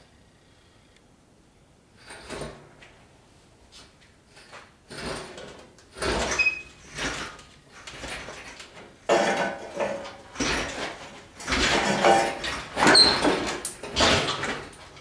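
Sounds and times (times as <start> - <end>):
metal clanks and creaks: 4.3 - 15.0
high squeak: 6.3 - 6.8.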